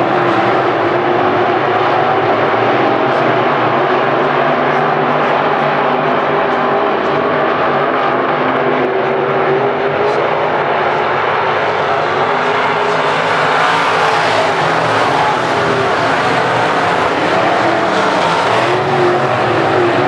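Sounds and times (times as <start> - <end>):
race car engines droning: 0.0 - 20.0.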